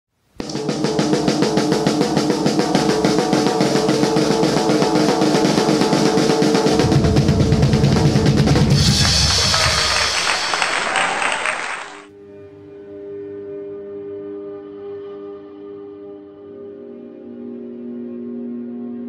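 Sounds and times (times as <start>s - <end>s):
fast drum-heavy music: 0.4s - 12.1s
heavy bass: 6.8s - 10.1s.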